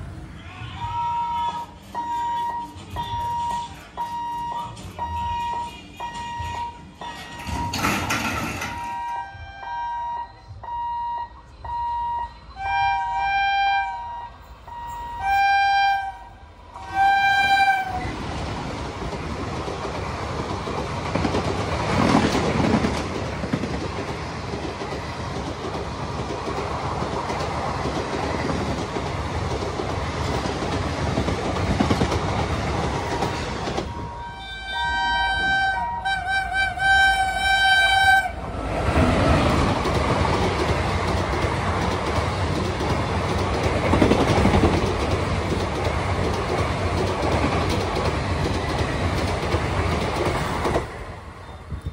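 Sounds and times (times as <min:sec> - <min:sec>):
locomotive horn blasts: 0:00.8 - 0:07.8, 0:08.7 - 0:18.1, 0:33.9 - 0:38.4
level-crossing warning buzzer beeping: 0:01.1 - 0:15.2, 0:33.0 - 0:36.0
train wheels rushing and rattling: 0:01.2 - 0:09.4, 0:16.8 - 0:34.3, 0:35.3 - 0:51.9.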